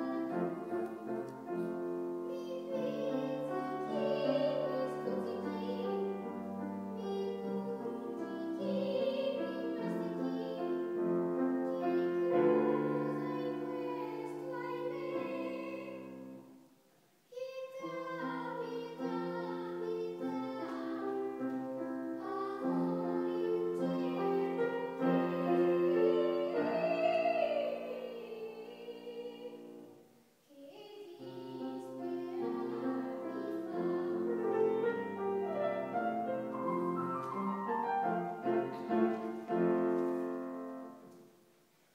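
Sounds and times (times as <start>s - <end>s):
grand piano: 0.0s - 41.9s
woman singing operatically: 23.8s - 29.8s.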